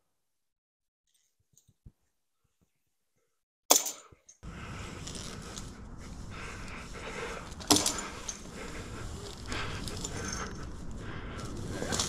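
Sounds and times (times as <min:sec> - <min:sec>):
outdoor background noise: 0:03.7 - 0:12.0
climbing rope rustling: 0:04.3 - 0:12.0.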